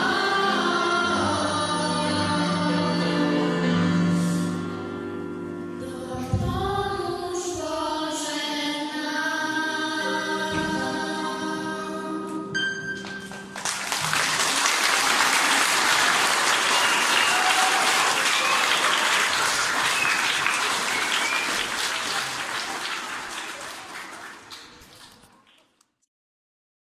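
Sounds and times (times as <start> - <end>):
choir singing: 0.0 - 5.2, 5.8 - 12.5
audience applauding: 13.0 - 25.8.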